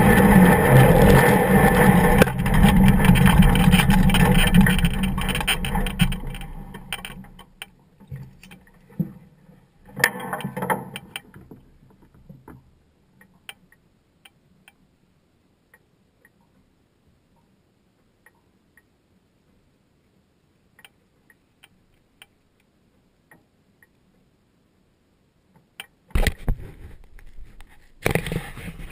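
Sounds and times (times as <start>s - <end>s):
engine and propeller winding down: 0.0s - 6.5s
rustles and knocks: 0.0s - 12.7s, 26.1s - 28.9s
faint ticks: 10.0s - 14.8s, 17.3s - 24.3s.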